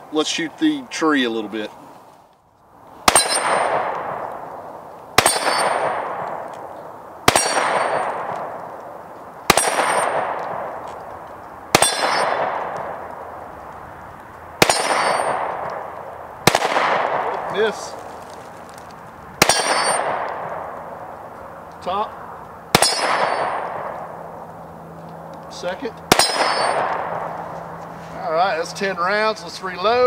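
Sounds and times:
pistol shots: 3.0 - 13.4, 14.6 - 18.0, 19.4 - 21.3, 22.7 - 24.4, 25.5 - 27.5
metallic clang of steel target: 3.1 - 3.8, 5.2 - 6.0, 7.3 - 8.2, 11.8 - 12.4, 14.6 - 15.4, 19.4 - 20.2, 22.8 - 23.7, 26.1 - 27.0.

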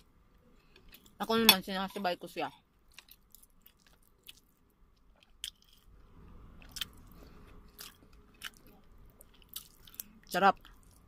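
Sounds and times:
chewing: 2.9 - 5.9, 6.6 - 11.0.

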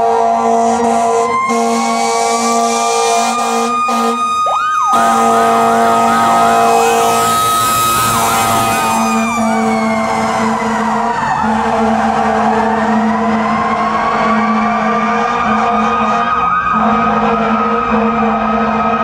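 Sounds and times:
electronic siren yelping: 1.2 - 14.8.

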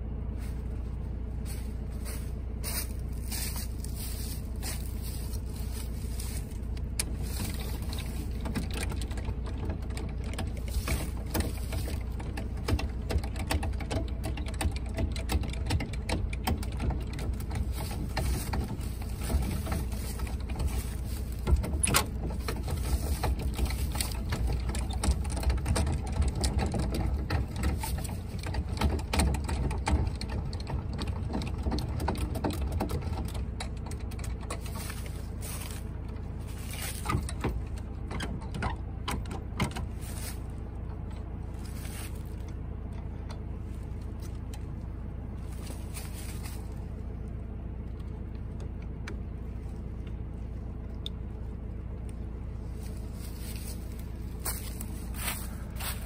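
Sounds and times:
low steady rumble: 0.0 - 56.0
hand crank clicking and rattling: 6.8 - 39.9.

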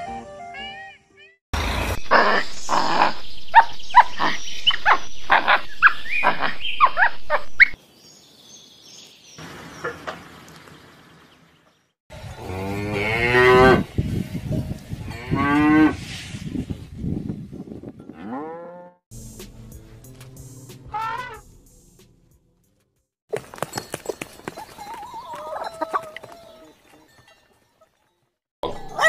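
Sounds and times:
cows mooing: 12.3 - 13.9, 18.1 - 19.0.

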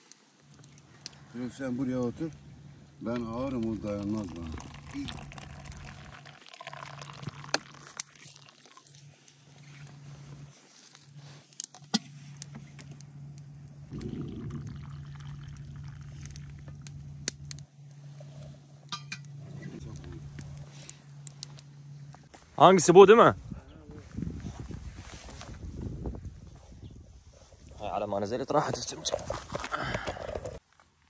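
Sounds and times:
steady low hum: 0.2 - 30.6
glasses and dishes clinking: 18.9 - 19.2.

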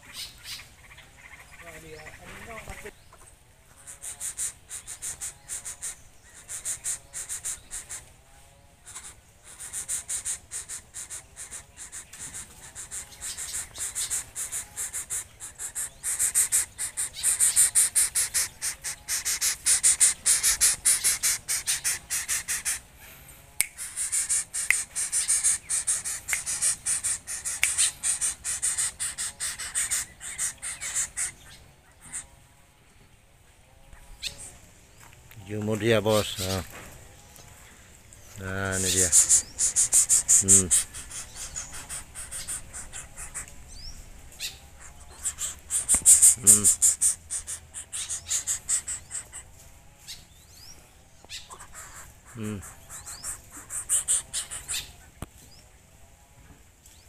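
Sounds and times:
insect clicking buzz: 23.6 - 29.3, 38.9 - 43.6, 45.2 - 49.0.

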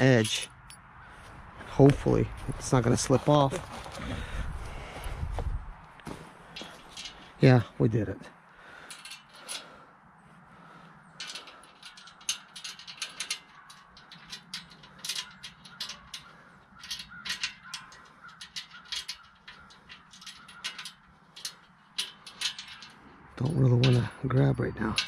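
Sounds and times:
light metallic clicks and taps: 11.2 - 24.2.

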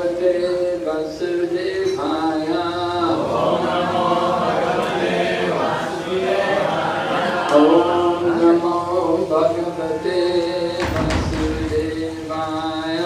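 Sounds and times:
group of voices answering: 2.7 - 8.6.

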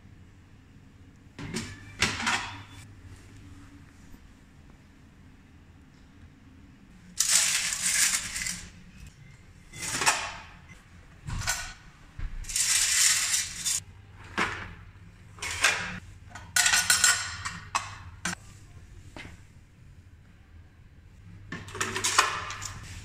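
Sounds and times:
coins clattering in metal trays: 7.2 - 8.8, 12.4 - 13.8.

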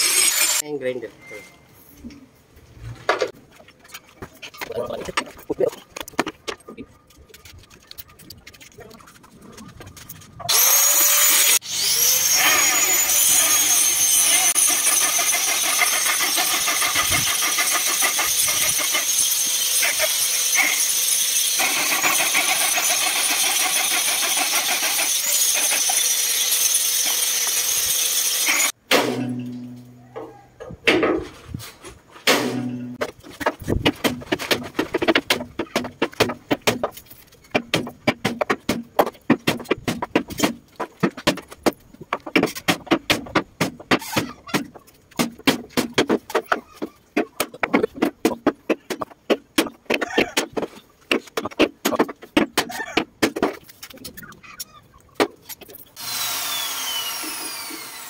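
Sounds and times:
angle grinder grinding steel: 0.0 - 0.6, 10.5 - 28.8
sharp metal knocks: 28.8 - 29.9.

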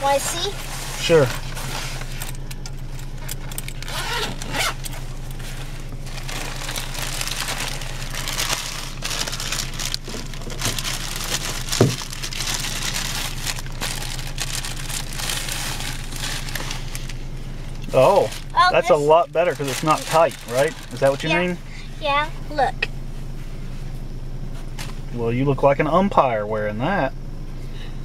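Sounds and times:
low hum inside a car: 0.0 - 28.0
plastic bag and fabric rustling: 3.0 - 21.7.

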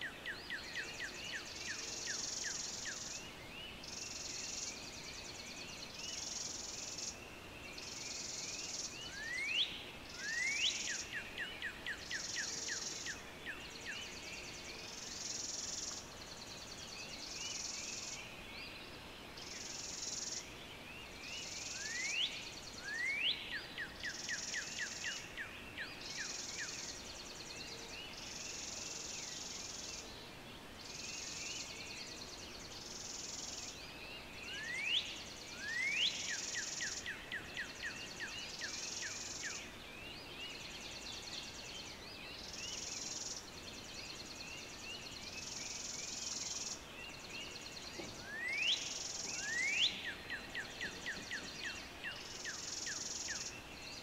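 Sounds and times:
birds chirping: 0.0 - 54.0.

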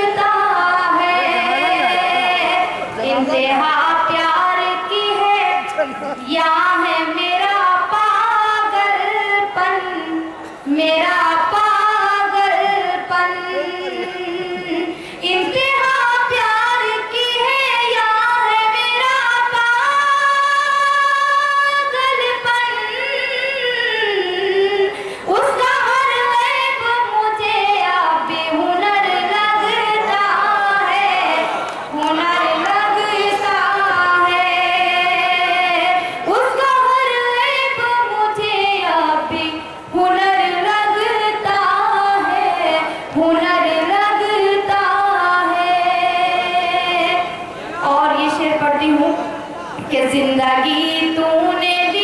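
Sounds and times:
woman singing into a microphone: 0.0 - 52.0.

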